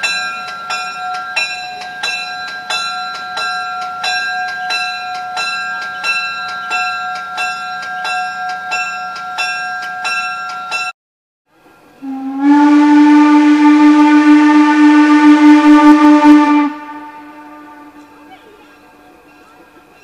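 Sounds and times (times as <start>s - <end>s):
bell ringing: 0.0s - 10.9s
steam locomotive whistle blast: 12.0s - 18.5s.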